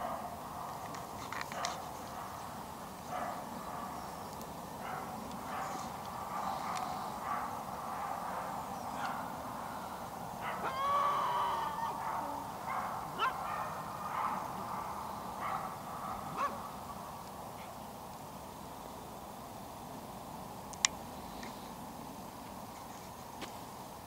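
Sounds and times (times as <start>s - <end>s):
distant bird calling: 2.0s - 17.9s.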